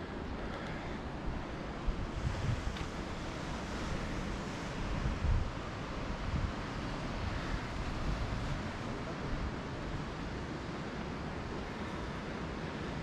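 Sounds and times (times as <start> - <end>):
sea surf breaking on rocks: 0.5 - 13.0
wind buffeting microphone: 1.1 - 10.4.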